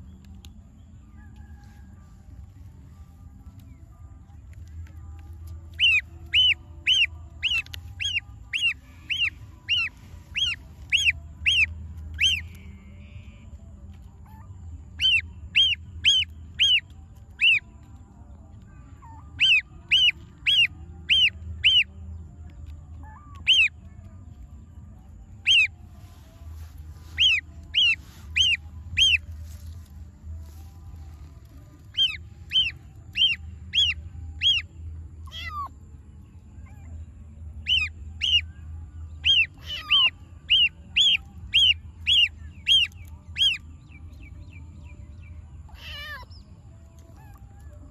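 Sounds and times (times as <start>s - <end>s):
gosling peeping: 5.8s - 12.5s, 15.0s - 17.6s, 19.0s - 21.9s, 23.0s - 23.7s, 25.4s - 25.7s, 27.0s - 29.3s, 31.9s - 34.6s, 37.6s - 38.4s, 39.2s - 43.6s.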